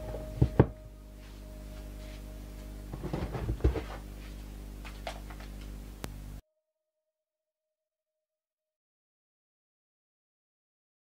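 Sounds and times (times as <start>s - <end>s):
low electrical hum: 0.0s - 6.4s
knocks and rustles of handling: 2.9s - 5.7s.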